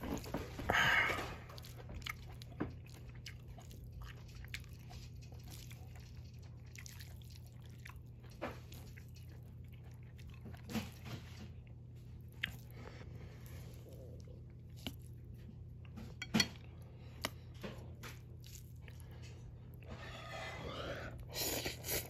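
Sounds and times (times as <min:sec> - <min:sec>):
person chewing noodles: 0:00.0 - 0:22.0
steady low hum: 0:00.0 - 0:22.0.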